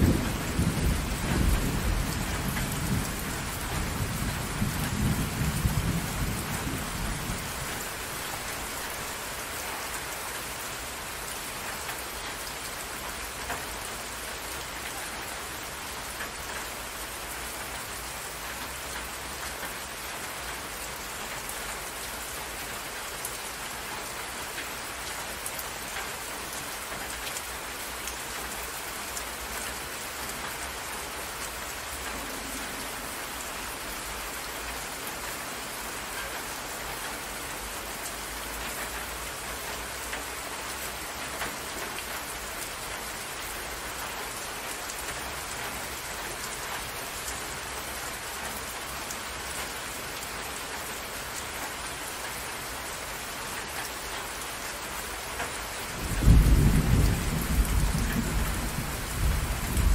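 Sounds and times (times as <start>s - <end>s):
low thunder rumble: 0.0s - 8.9s, 56.0s - 59.9s
rain falling on water: 0.0s - 59.9s.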